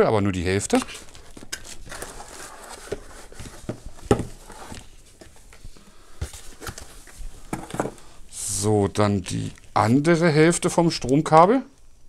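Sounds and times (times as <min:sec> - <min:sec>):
cardboard scraping and knocking: 0:02.5 - 0:05.4, 0:07.5 - 0:08.0.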